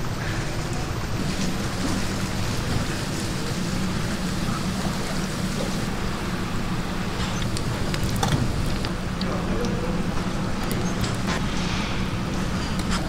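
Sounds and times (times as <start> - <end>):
food deep-frying sizzle: 7.2 - 9.2.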